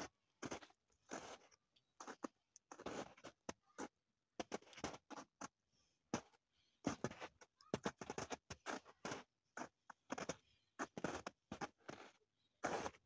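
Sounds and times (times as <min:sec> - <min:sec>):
footsteps crunching in snow: 0:00.4 - 0:03.3, 0:06.9 - 0:13.0.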